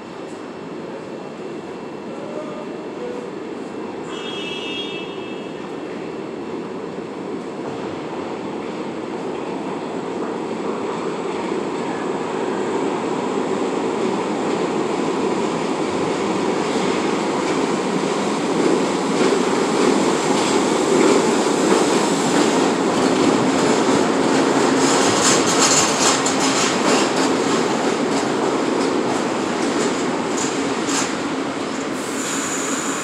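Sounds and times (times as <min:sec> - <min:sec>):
subway train rumble: 0:00.0 - 0:33.0
wheels clicking over rail joints: 0:18.6 - 0:31.2.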